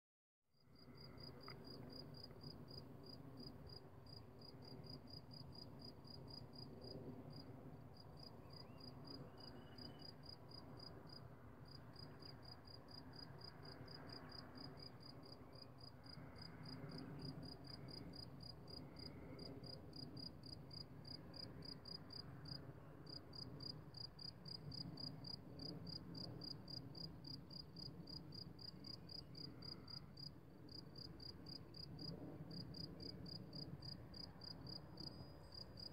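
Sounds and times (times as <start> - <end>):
cricket chirping: 8.2 - 35.9.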